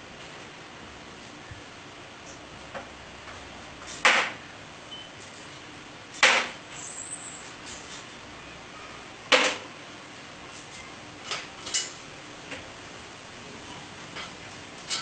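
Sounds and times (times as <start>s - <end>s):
sharp knocks on metal frame: 4.0s - 4.4s, 6.2s - 6.6s.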